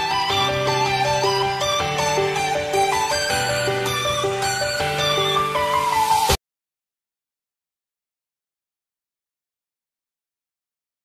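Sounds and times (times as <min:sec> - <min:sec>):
instrumental background music: 0:00.0 - 0:06.4.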